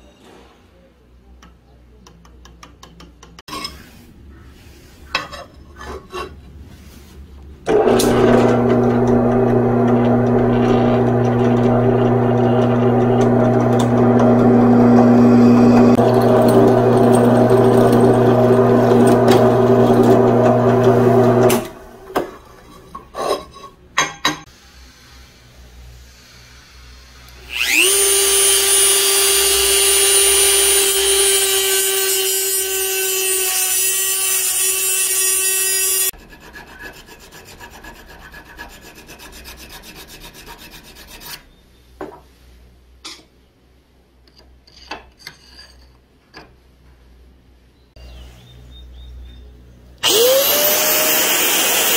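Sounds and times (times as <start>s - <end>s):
drill press boring steel: 7.7s - 21.7s, 27.3s - 36.1s, 50.0s - 51.9s
rotary tool cutting steel: 7.8s - 21.7s, 27.3s - 37.3s, 50.0s - 51.9s
hand file rasping on steel: 32.8s - 41.4s.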